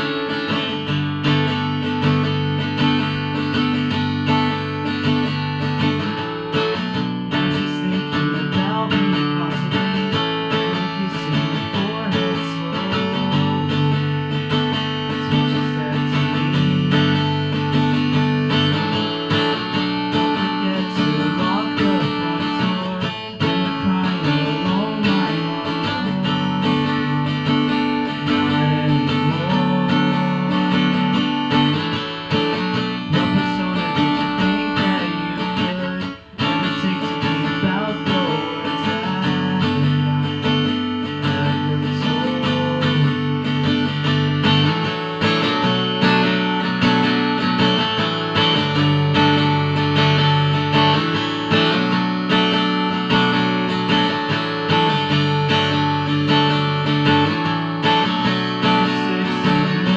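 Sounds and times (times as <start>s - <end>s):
acoustic guitar: 0.0s - 59.9s.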